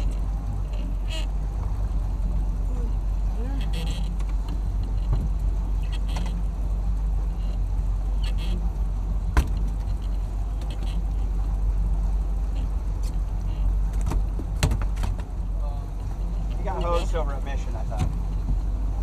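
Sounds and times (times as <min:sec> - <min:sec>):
boat engine idling: 0:00.0 - 0:19.0
faint squawking calls: 0:00.6 - 0:01.4, 0:02.8 - 0:04.2, 0:05.8 - 0:06.4, 0:08.2 - 0:08.6.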